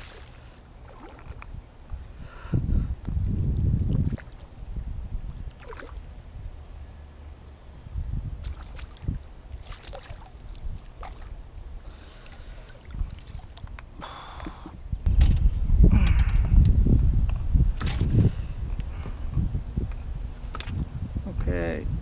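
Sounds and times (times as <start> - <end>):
fish splashing in water: 0.0 - 1.4, 5.5 - 6.0, 8.4 - 11.4
steady low rumble: 0.4 - 22.0.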